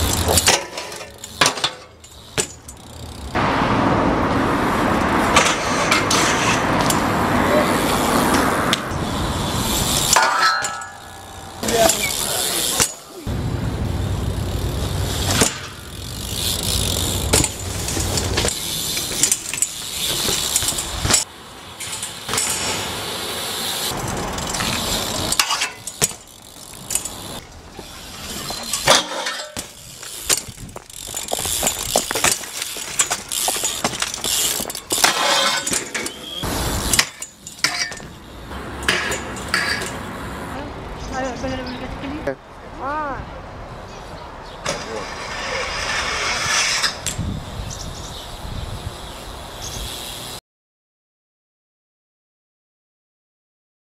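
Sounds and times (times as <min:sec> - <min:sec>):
bike clanking on metal rails: 0:00.0 - 0:03.4, 0:05.0 - 0:13.3, 0:14.6 - 0:23.0, 0:23.8 - 0:40.2, 0:44.6 - 0:47.2
bike landing impacts: 0:00.0 - 0:03.5, 0:05.1 - 0:40.1, 0:44.6 - 0:47.4
bike tyres rolling on pavement: 0:00.0 - 0:50.4.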